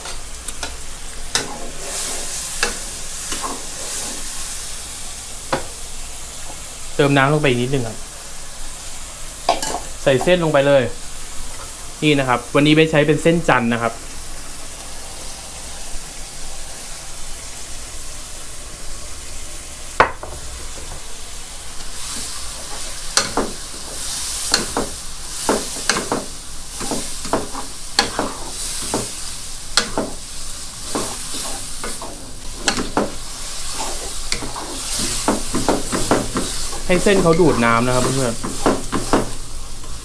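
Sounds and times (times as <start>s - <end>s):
noodles sizzling in wok: 0.0s - 40.0s
wooden spatula scraping pan: 1.4s - 4.3s, 30.8s - 39.4s.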